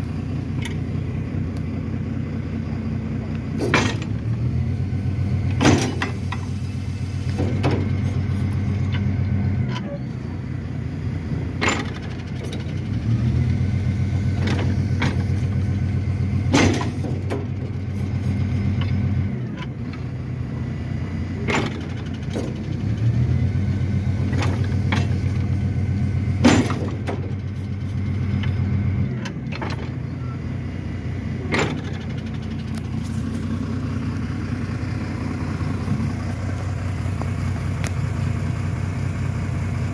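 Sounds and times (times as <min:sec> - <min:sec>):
garbage truck diesel engine: 0:00.0 - 0:39.9
metal clanks of bin lifter: 0:03.5 - 0:04.4, 0:05.5 - 0:06.6, 0:07.2 - 0:10.2, 0:11.4 - 0:12.8, 0:14.2 - 0:15.7, 0:16.4 - 0:20.2, 0:21.4 - 0:23.1, 0:24.2 - 0:25.6, 0:26.3 - 0:30.2, 0:31.4 - 0:33.2.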